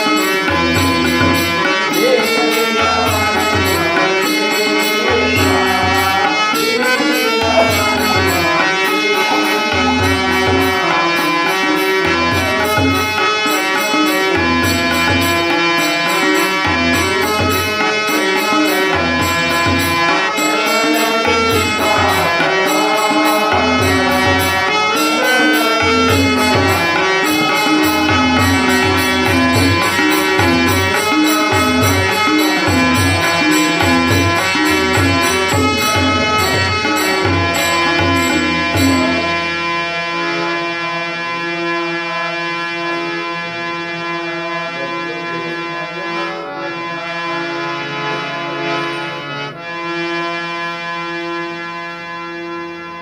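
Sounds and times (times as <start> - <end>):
hand drum rhythm: 0.0 - 39.4
harmonium melody: 0.0 - 53.0.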